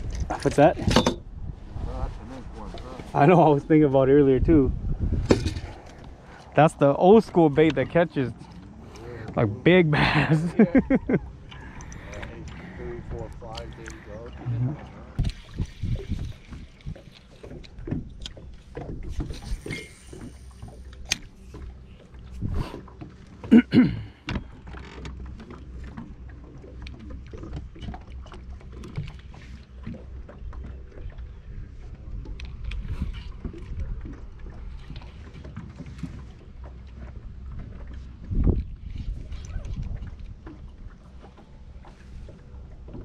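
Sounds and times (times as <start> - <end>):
boat knocks and clicks: 0.0 - 1.4, 5.1 - 6.5, 14.8 - 43.0.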